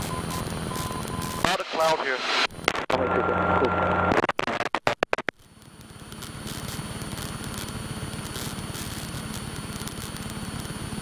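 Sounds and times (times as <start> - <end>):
light aircraft engine and propeller: 0.0 - 1.2, 5.4 - 11.0.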